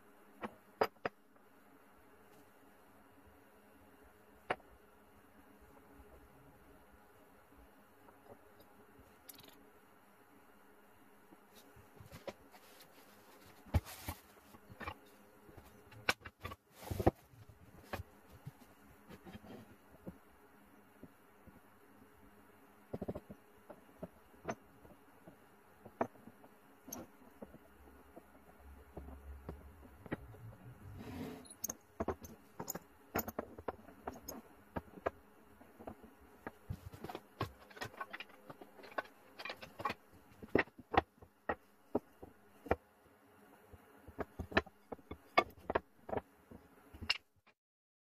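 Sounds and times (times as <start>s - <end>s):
wood pieces clunking in cardboard box: 36.4s - 41.2s.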